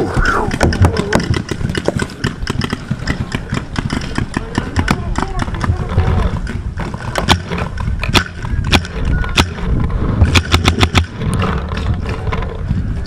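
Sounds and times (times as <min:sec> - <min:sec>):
wind rumble on microphone: 0:00.0 - 0:13.0
paintball marker shots: 0:00.1 - 0:05.8.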